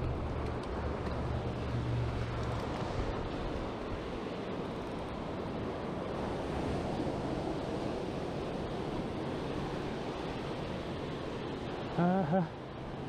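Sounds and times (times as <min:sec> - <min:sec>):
small waves washing over sand: 0:00.8 - 0:13.0.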